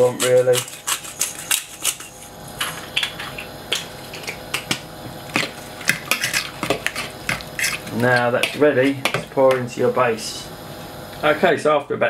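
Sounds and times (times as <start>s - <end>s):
pepper mill grinding: 0.0s - 4.7s
utensil stirring in a bowl: 0.0s - 10.0s.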